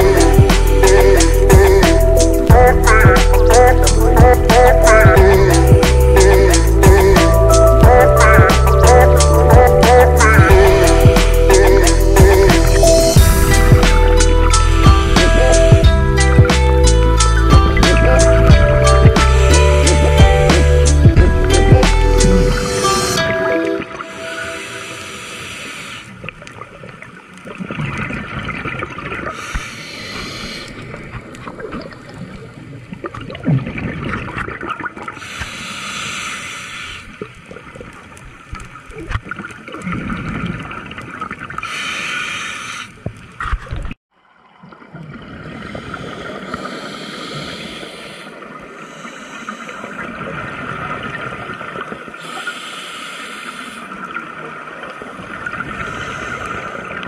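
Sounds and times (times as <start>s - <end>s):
low underwater rumble: 10.4s - 23.0s
exhaled bubbles hissing and gurgling: 24.0s - 43.3s, 44.7s - 57.0s.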